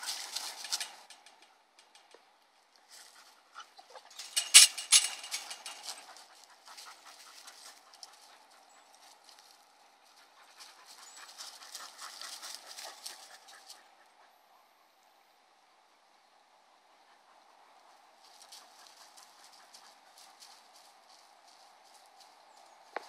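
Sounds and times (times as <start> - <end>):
dogs scuffling: 0.0 - 1.4, 2.9 - 13.8
dogs panting: 3.0 - 14.5, 16.9 - 21.6.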